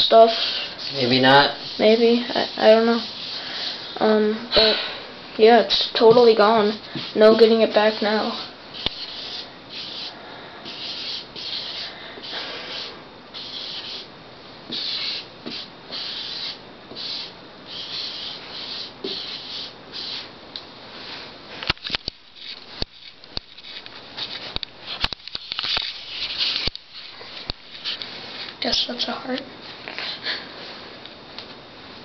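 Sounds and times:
eraser scrubbing chalkboard: 0:00.1 - 0:03.8, 0:05.6 - 0:14.1, 0:14.7 - 0:20.3.

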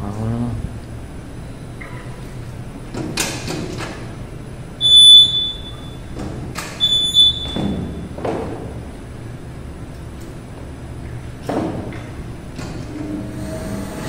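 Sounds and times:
short high buzzer beep: 0:04.8 - 0:06.0, 0:06.8 - 0:07.6.

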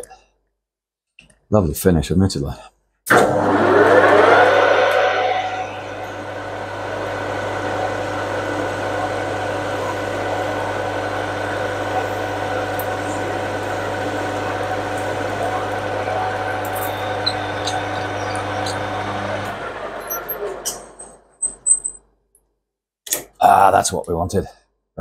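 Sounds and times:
lathe humming and whining: 0:03.1 - 0:21.1.

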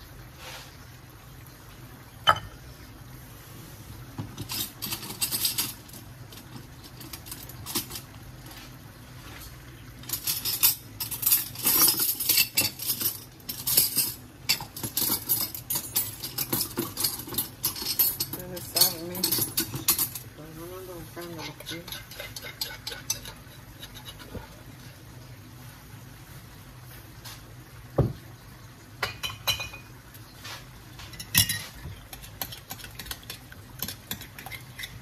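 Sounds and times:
kitchen utensils clinking and clattering: 0:04.2 - 0:08.6, 0:09.5 - 0:20.4, 0:21.2 - 0:25.0, 0:29.0 - 0:29.9, 0:31.0 - 0:35.0.

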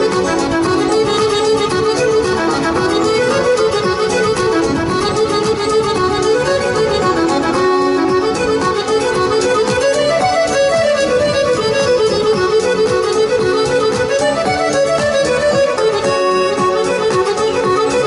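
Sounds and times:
fiddle-led dance tune: 0:00.0 - 0:18.0.

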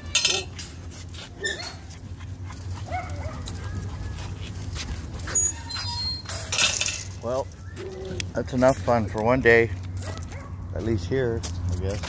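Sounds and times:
dog whining and whimpering: 0:00.1 - 0:02.0, 0:05.1 - 0:06.6.

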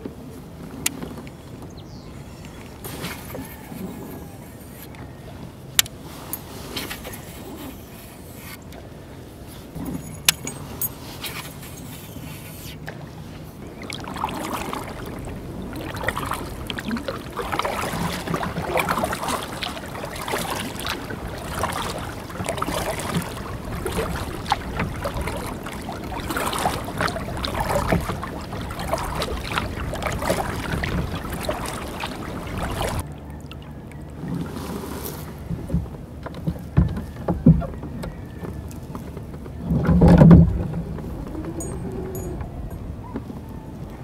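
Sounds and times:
kayak paddle splashing water: 0:09.8 - 0:42.0.

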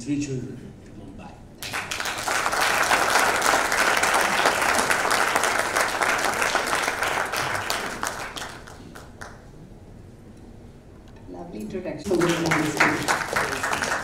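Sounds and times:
audience applauding: 0:01.6 - 0:09.5, 0:12.0 - 0:14.0.

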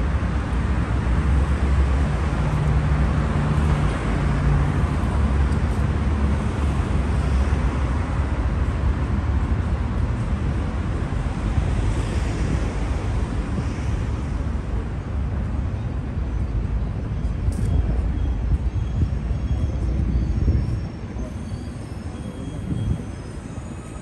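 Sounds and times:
street traffic rumble: 0:00.0 - 0:24.0.

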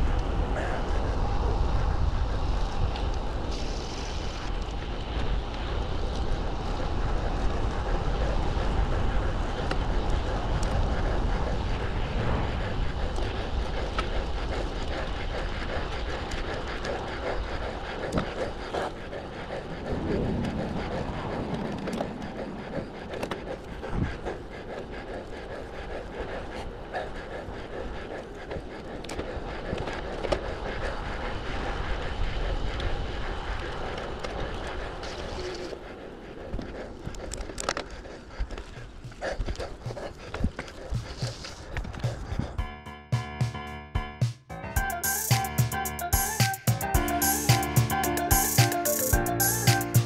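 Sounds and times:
tyres rolling on asphalt: 0:00.0 - 0:42.3
wind rushing over microphone: 0:00.0 - 0:42.6
bike clicks and rattles: 0:01.1 - 0:19.7, 0:21.5 - 0:42.6.

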